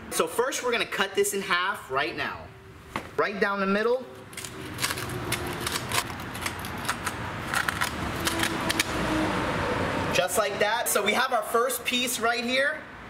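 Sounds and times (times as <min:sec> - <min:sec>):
knife cutting ribbed plastic: 0:04.2 - 0:09.0.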